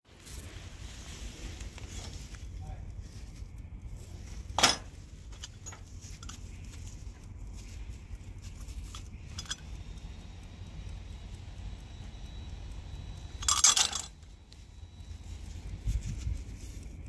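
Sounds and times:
metal tools clinking: 4.5s - 6.5s, 8.9s - 9.6s, 13.4s - 14.2s.

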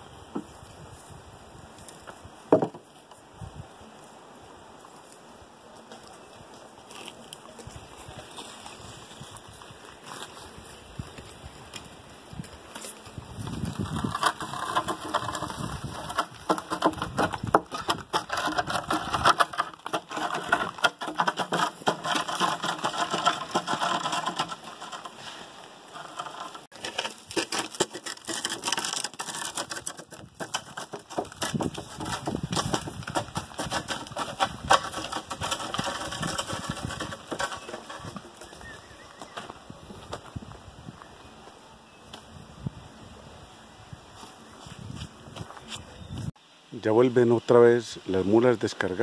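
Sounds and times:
boards dragging over gravel: 4.6s - 42.4s
hooves on gravel: 4.8s - 42.3s, 44.1s - 46.3s.

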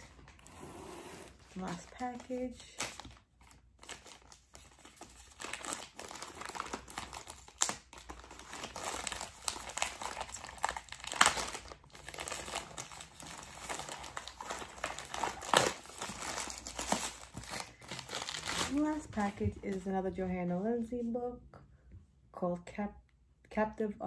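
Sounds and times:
plastic mailer bag crinkling: 1.3s - 19.8s.

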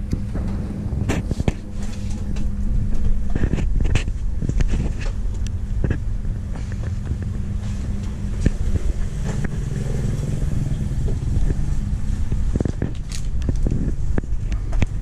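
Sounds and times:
engine running: 0.0s - 15.0s.

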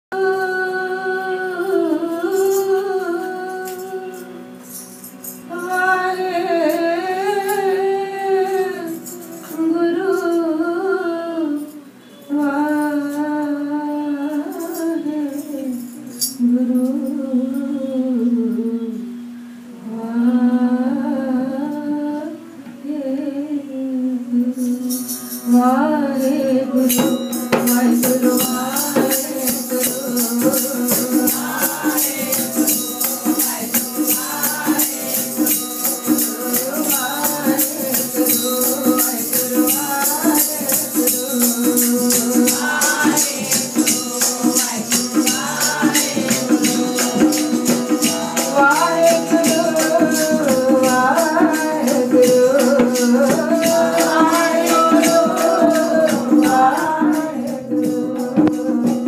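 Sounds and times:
woman singing: 0.1s - 4.5s, 5.5s - 59.0s
tabla strokes: 26.8s - 59.0s.

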